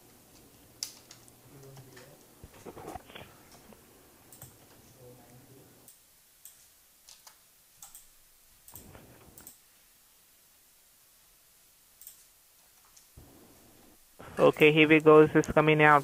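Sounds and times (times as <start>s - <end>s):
keyboard clicks: 4.3s - 4.8s, 5.9s - 8.1s, 8.7s - 9.6s.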